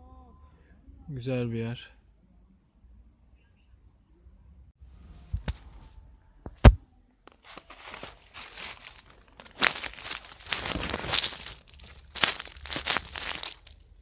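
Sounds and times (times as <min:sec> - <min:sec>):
phone rustling against skin: 0:06.5 - 0:13.8.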